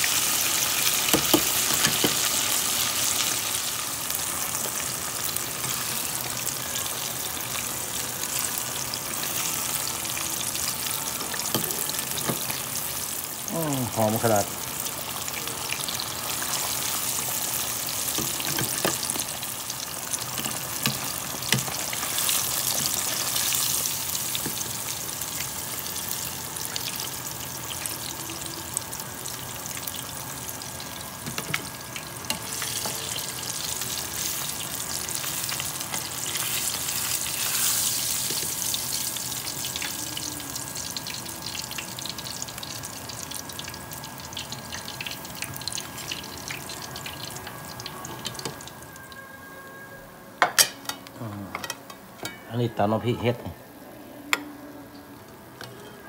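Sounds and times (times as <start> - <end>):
fish sizzling in hot oil: 0.0 - 49.0.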